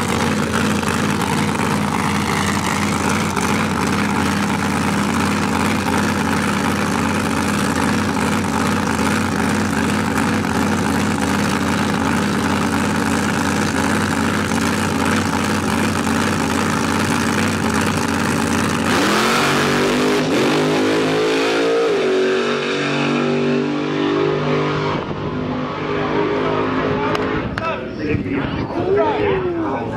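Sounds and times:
drag car engine idling and launching: 0.0s - 21.1s.

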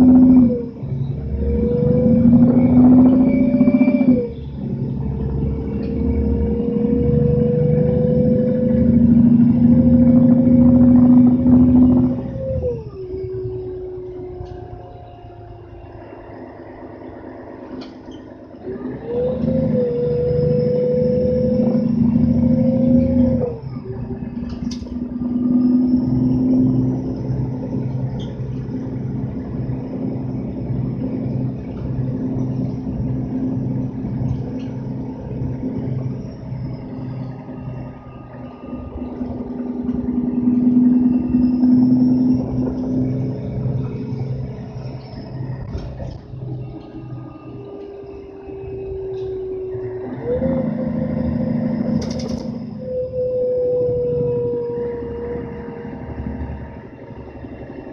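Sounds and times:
bus diesel engine: 0.0s - 57.9s.

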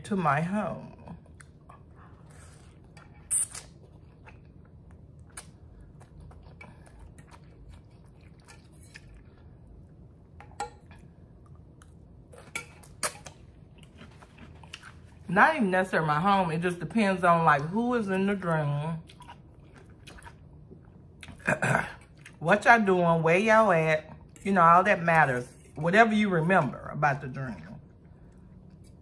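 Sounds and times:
person chewing noodles: 1.2s - 15.2s, 19.1s - 21.4s.

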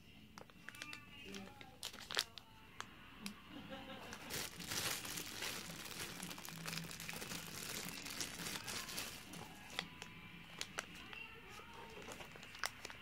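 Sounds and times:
plastic bag crinkling: 0.7s - 2.5s, 3.9s - 13.0s.

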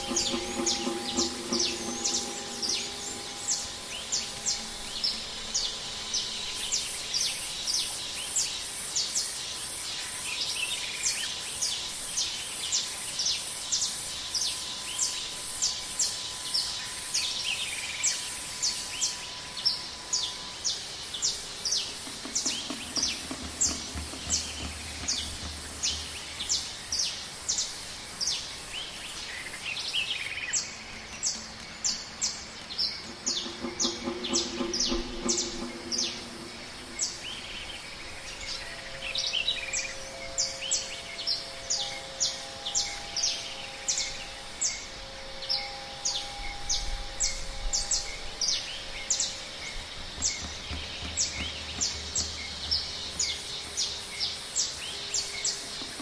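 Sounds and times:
low rumble: 0.0s - 6.8s, 33.0s - 38.6s
forest background hiss: 0.0s - 56.0s
bird chirping: 21.2s - 56.0s.

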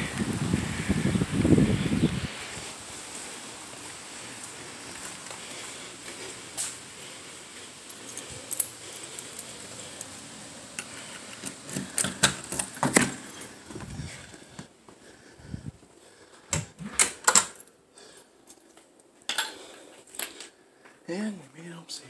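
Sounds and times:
steady hiss: 0.0s - 16.8s.

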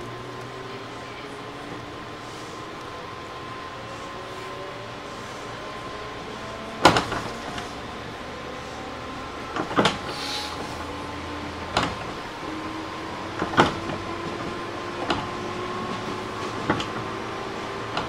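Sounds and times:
train wheels clacking over rail joints: 13.3s - 18.0s.

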